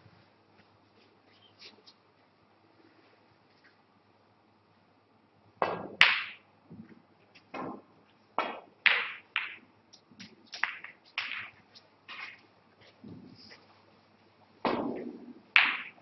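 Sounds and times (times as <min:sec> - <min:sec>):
snooker balls clicking: 0:05.6 - 0:13.2, 0:14.6 - 0:16.0.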